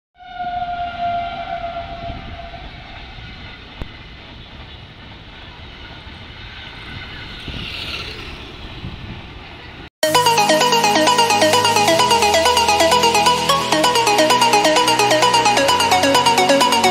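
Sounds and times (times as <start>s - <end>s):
train horn: 0.2s - 3.7s
train rumbling over rails: 0.3s - 9.9s.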